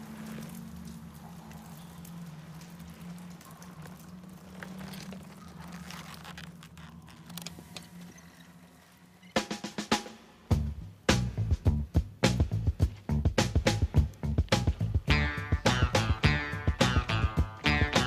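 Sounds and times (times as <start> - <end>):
clicks and rustles of handling: 0.0 - 8.5.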